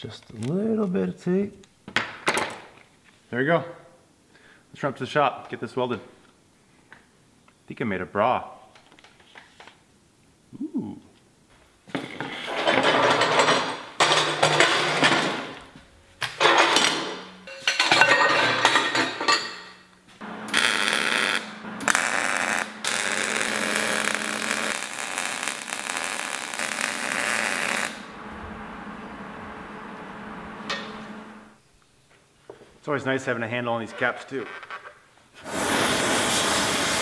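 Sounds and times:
welder arc hissing: 20.5s - 28.1s, 35.4s - 37.0s.

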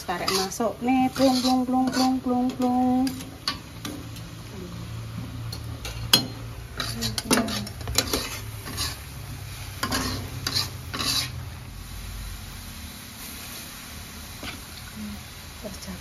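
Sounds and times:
spatula scraping a pan: 0.0s - 3.7s, 5.8s - 11.5s
light sizzle: 0.0s - 16.0s.

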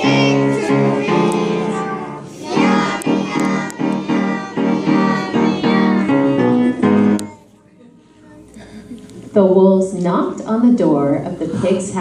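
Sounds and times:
children singing: 0.0s - 7.5s
instrumental accompaniment: 0.0s - 7.5s.

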